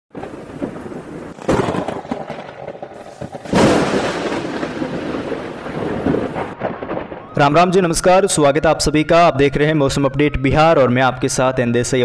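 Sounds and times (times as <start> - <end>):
thunder cracks with rumble: 0.1 - 9.1.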